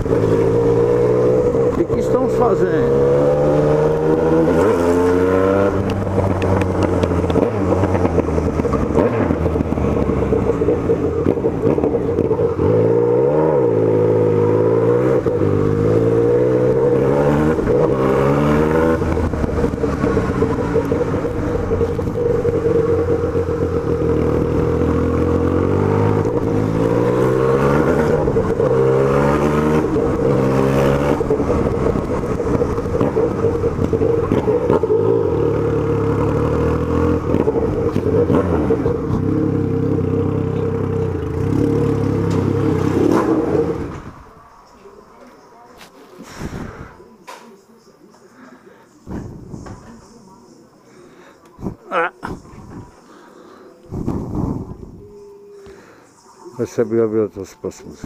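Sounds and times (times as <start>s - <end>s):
motorcycle engine accelerating: 0.0s - 44.6s.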